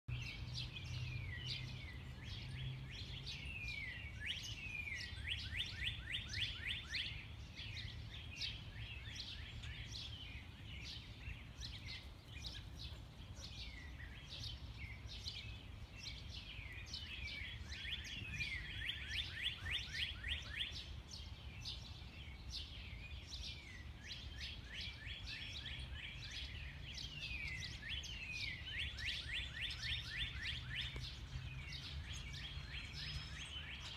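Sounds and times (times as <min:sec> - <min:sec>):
songbirds chirping: 0:00.1 - 0:33.9.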